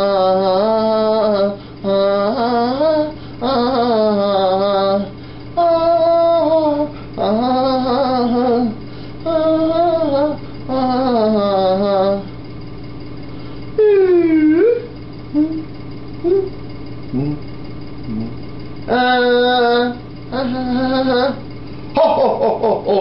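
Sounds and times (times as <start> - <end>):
person singing long wavering notes: 0.0 - 12.3, 13.8 - 16.6, 18.1 - 21.4
faint low hum: 0.0 - 23.0.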